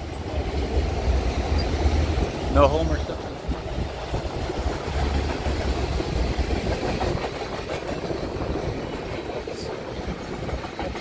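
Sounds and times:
freight train cars rumbling: 0.0s - 11.0s
steel wheels on rails: 0.0s - 11.0s.

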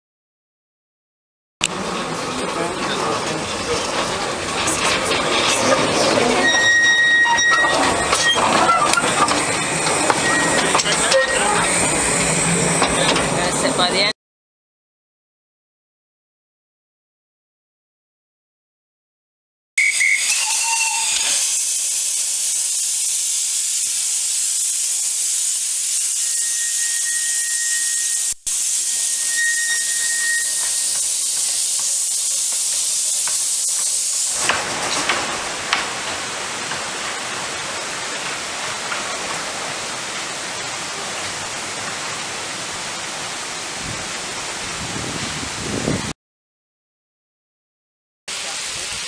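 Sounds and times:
steam locomotive hissing: 1.7s - 14.0s, 19.8s - 45.9s, 48.3s - 49.0s.

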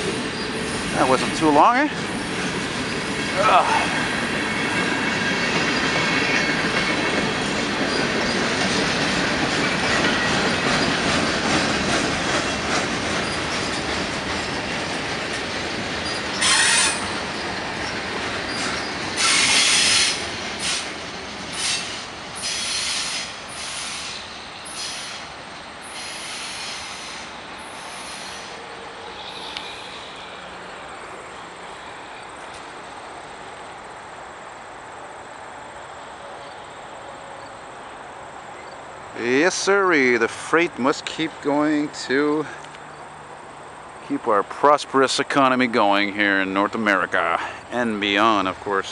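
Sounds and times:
freight train rolling on steel wheels: 0.0s - 34.4s, 36.2s - 48.9s
high wheel screeches: 16.0s - 17.2s, 18.5s - 20.9s, 21.5s - 30.5s.

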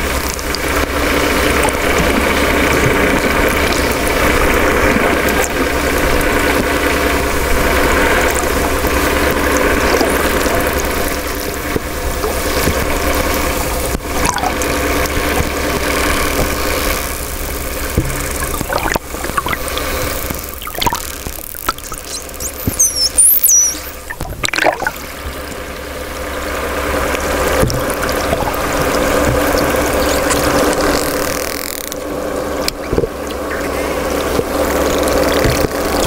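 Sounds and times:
underwater mechanical hum: 0.0s - 36.0s
sharp clicks: 18.0s - 25.0s.

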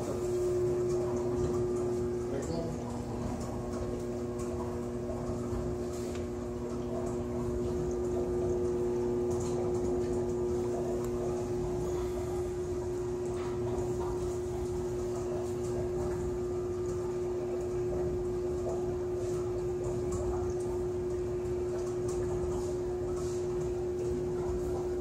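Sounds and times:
steady hum: 0.0s - 25.0s
water sounds: 0.0s - 25.0s.

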